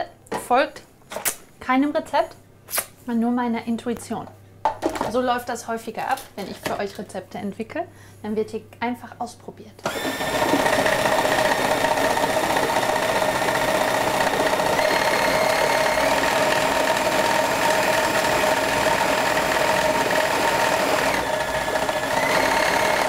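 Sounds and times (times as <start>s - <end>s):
food processor motor whining: 9.8s - 23.0s.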